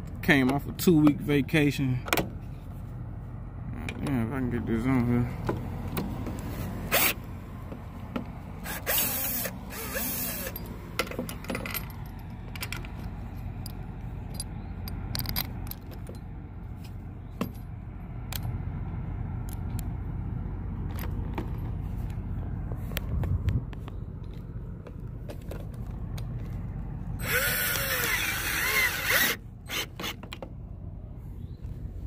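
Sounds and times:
steady low rumble: 0.0s - 32.0s
metal hardware clinking: 10.3s - 16.3s, 17.3s - 17.7s.

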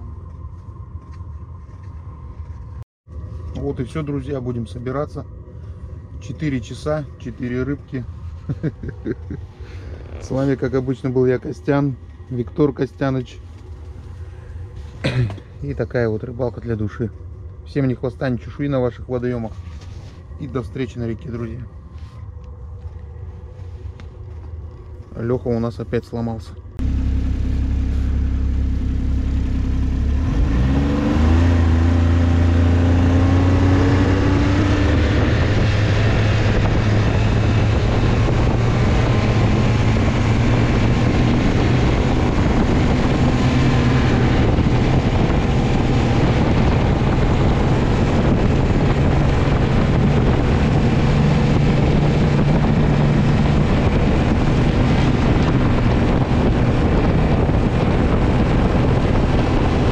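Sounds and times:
steady rushing noise: 0.0s - 59.9s
snowmobile engine revving: 26.8s - 59.9s.

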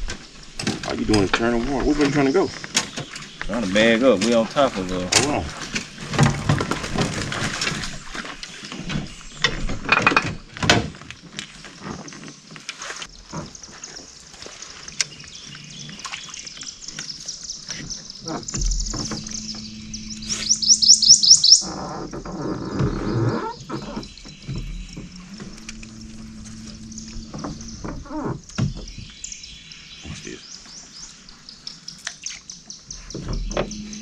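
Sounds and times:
bird chirping: 13.1s - 34.0s.

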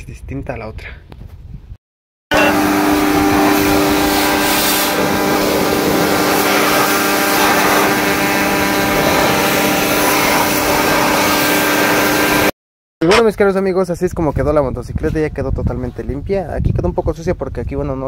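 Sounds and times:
pressure washer motor hum: 2.3s - 12.5s
water jet spraying: 2.3s - 12.5s.

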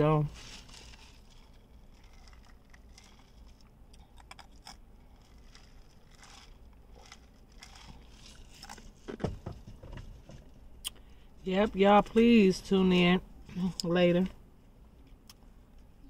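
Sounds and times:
small clicks and crackles: 0.4s - 9.2s
chewing: 0.6s - 9.1s.

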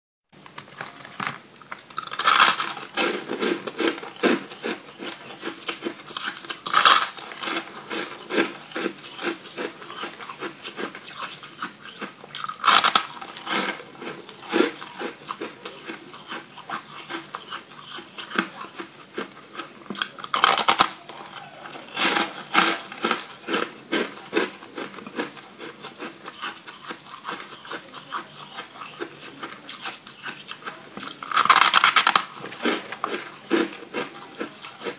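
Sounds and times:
crackling crunches and chewing: 0.4s - 34.9s
loud crunchy bites of ice: 1.9s - 15.1s, 20.0s - 25.7s, 31.2s - 34.1s.

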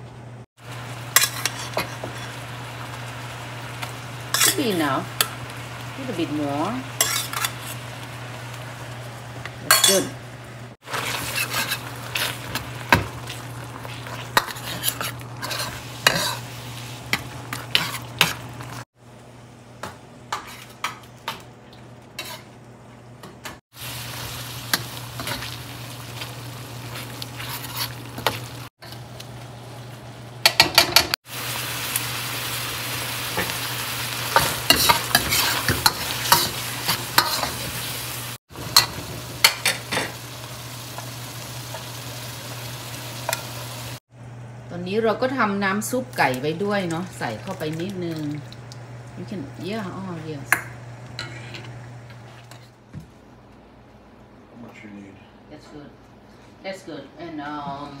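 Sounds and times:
food sizzling in a wok: 0.6s - 21.0s, 23.7s - 44.1s
metal ladle scraping a pan: 1.2s - 2.4s, 7.0s - 7.9s, 10.9s - 12.6s, 13.2s - 16.5s, 17.5s - 18.4s, 22.2s - 22.5s, 26.9s - 28.4s, 34.3s - 37.8s.

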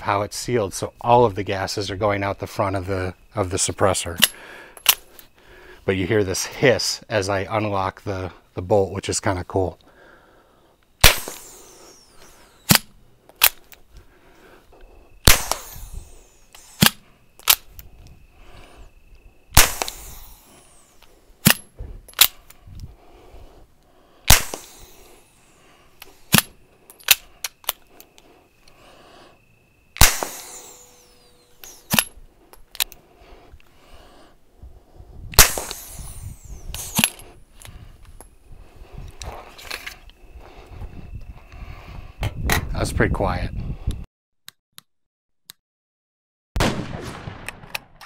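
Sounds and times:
pistol bolt clicks: 4.2s - 5.0s, 12.7s - 13.8s, 16.5s - 17.9s, 21.0s - 22.6s, 26.0s - 28.8s, 31.6s - 33.0s
suppressed pistol shots: 11.0s - 13.6s, 15.2s - 17.7s, 19.5s - 20.5s, 24.3s - 25.1s, 30.0s - 32.2s, 35.4s - 37.2s, 46.6s - 48.0s.

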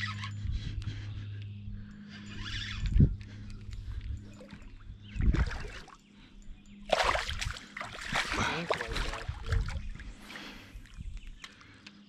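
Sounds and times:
fish splashing at water surface: 6.9s - 9.2s.

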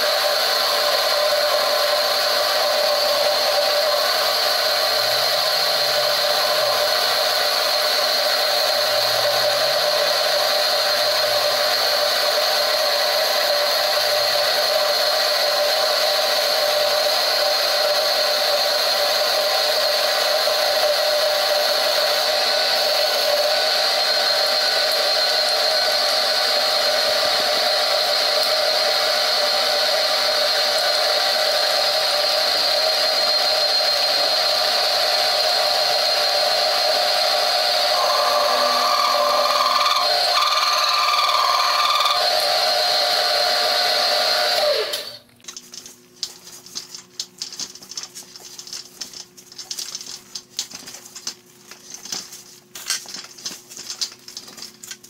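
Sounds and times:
metal lathe whining: 0.0s - 45.2s
higher machine tone: 37.9s - 42.4s.

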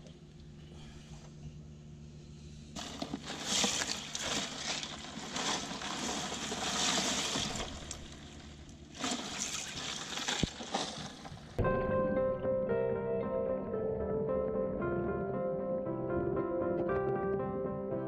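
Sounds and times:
water sloshing and splashing: 2.8s - 11.6s.

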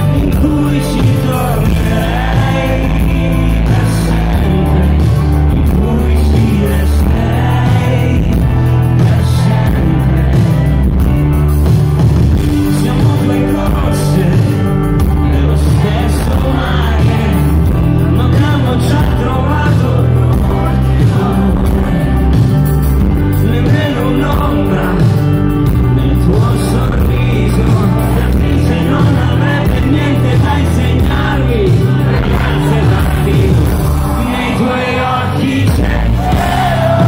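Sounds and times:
live pop-rock band playing: 0.0s - 37.0s
man singing lead vocal: 0.0s - 37.0s.

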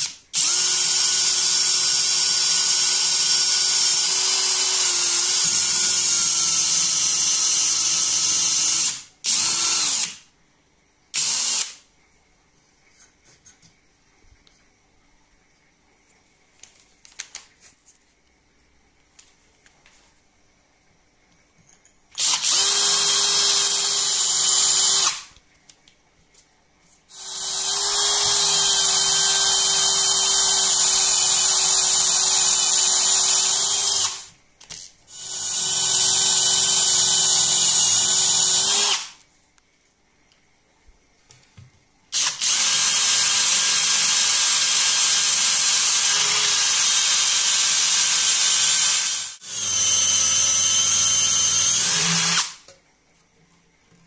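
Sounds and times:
cordless drill cutting into wood: 0.0s - 10.2s, 11.2s - 11.8s, 22.2s - 25.3s, 27.1s - 34.3s, 35.1s - 39.2s, 42.2s - 52.6s.

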